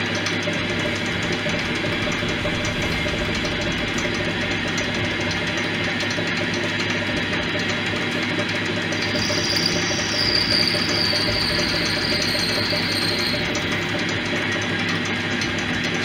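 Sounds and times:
metal lathe motor humming: 0.0s - 16.0s
cutting tool on spinning brass: 9.0s - 14.1s.

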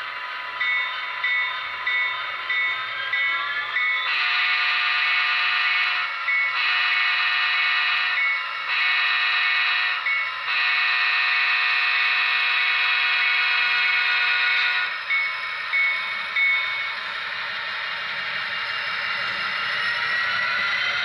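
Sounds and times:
model train air horn: 4.1s - 14.9s.

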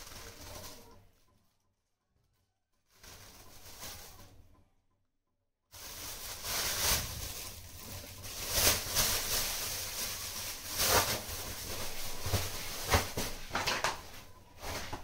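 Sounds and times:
plastic bag crinkling: 0.0s - 1.0s, 2.9s - 4.4s, 5.8s - 15.0s.

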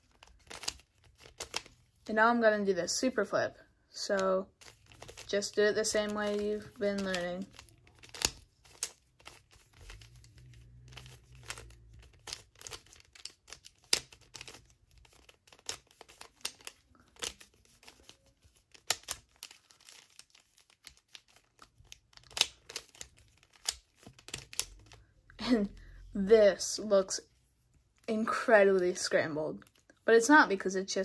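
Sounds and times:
puzzle cube clicking as turned: 0.4s - 1.7s, 6.0s - 25.0s.

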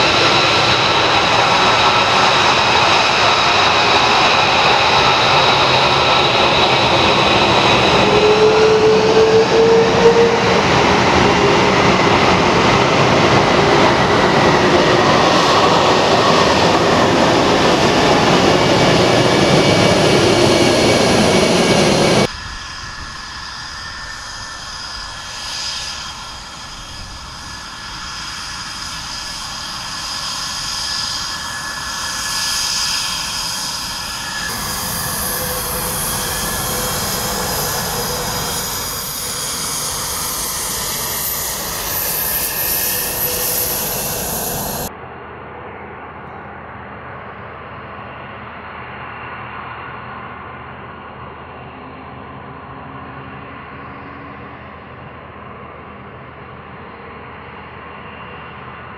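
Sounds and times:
jet engines roaring: 0.0s - 45.9s
turbine whine with whistling: 0.0s - 58.9s.

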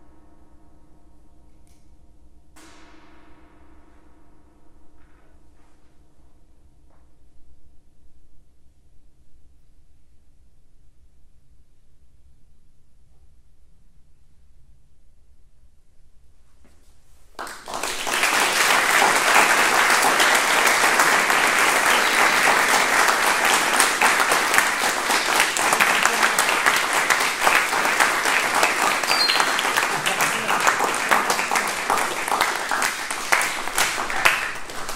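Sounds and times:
audience applauding: 17.4s - 34.9s.

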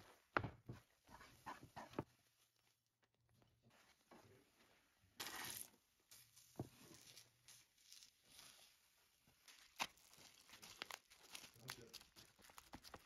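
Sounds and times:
spatula stirring sticky mixture: 1.0s - 2.4s, 6.2s - 13.0s.

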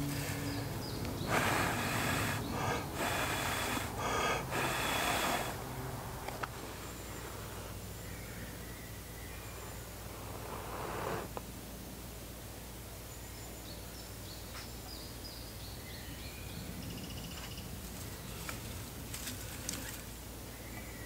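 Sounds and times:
small birds singing: 0.0s - 11.4s, 12.9s - 21.0s
low background noise: 0.0s - 21.0s
rustling: 17.8s - 20.2s.

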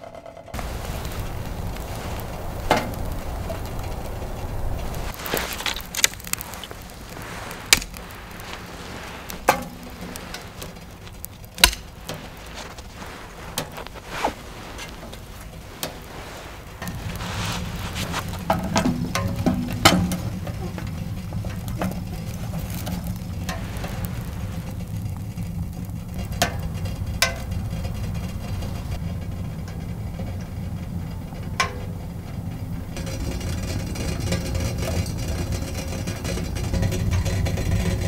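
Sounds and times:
wood fire crackling in stove: 0.0s - 38.0s.

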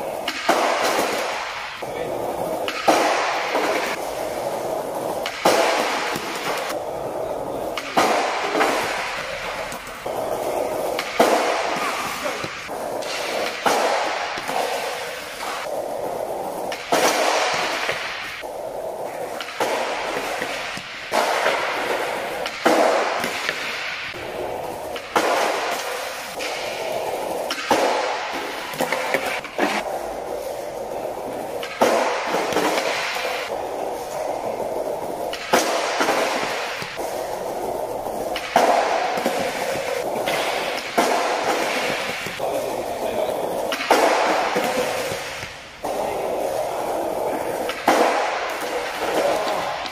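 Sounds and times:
skateboard wheels rolling on tiles: 0.0s - 49.9s
skateboard pops and slaps: 0.2s - 1.5s, 2.6s - 4.0s, 5.1s - 6.8s, 10.8s - 15.7s, 16.6s - 18.4s, 19.2s - 24.1s, 24.9s - 29.9s, 31.6s - 33.6s, 35.3s - 37.0s, 38.2s - 42.4s, 47.6s - 49.9s.

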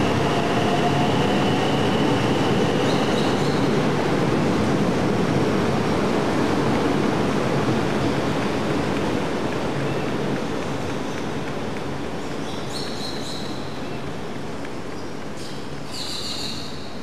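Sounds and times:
train rushing past: 0.0s - 11.2s.

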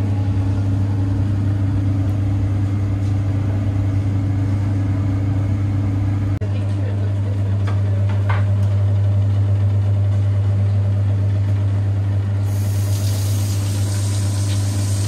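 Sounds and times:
steady low hum: 0.0s - 15.0s
tap water running into sink: 12.6s - 15.0s.

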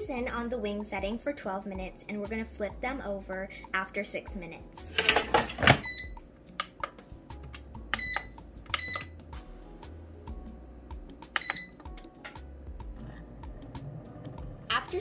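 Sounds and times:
soft background music: 0.0s - 15.0s
control panel beeps: 5.8s - 6.2s, 8.0s - 9.2s, 11.4s - 11.8s.

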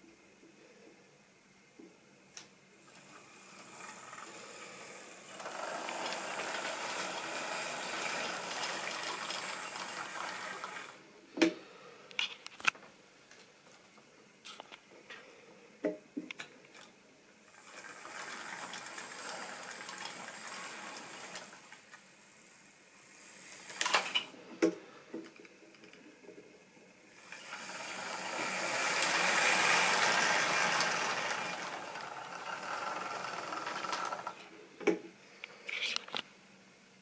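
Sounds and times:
model train whirring rattle: 2.9s - 11.0s, 17.5s - 22.2s, 23.0s - 24.3s, 27.1s - 34.4s.

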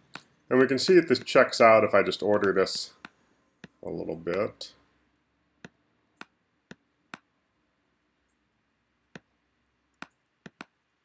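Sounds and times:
computer mouse clicks: 9.1s - 10.8s.

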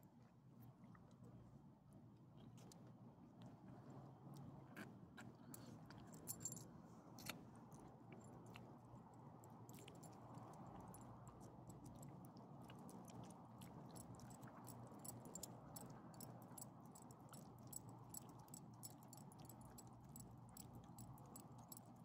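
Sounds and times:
dog chewing and licking: 7.2s - 22.0s.

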